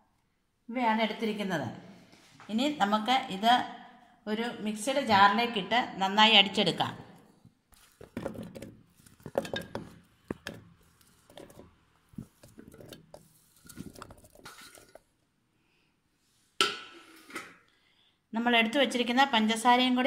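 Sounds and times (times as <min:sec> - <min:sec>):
fruit chunks thudding into jar: 0:08.0 - 0:13.1.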